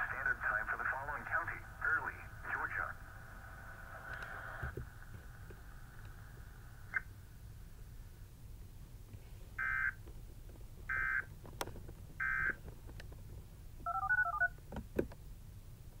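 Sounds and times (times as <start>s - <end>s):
low hum: 0.0s - 9.6s.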